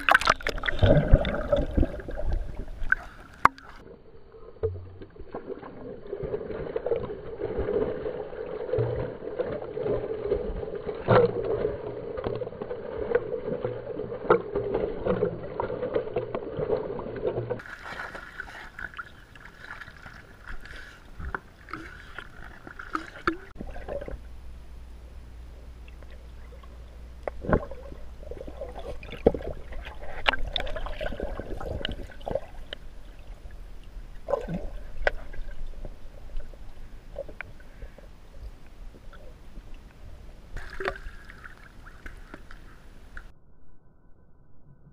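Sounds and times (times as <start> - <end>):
pool water splashing: 0.0 - 3.9, 5.2 - 37.9, 40.5 - 43.3
muffled underwater rumble: 20.4 - 44.9.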